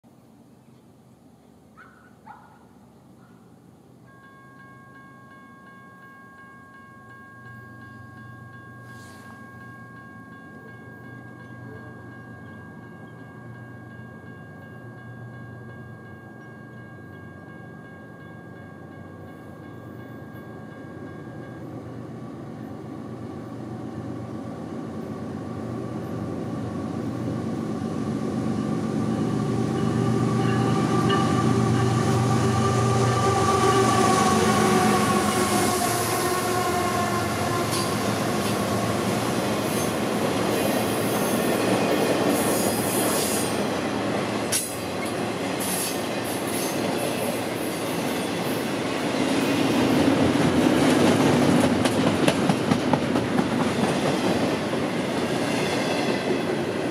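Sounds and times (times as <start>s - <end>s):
crossing warning bell ringing: 4.0s - 22.8s, 28.4s - 50.4s.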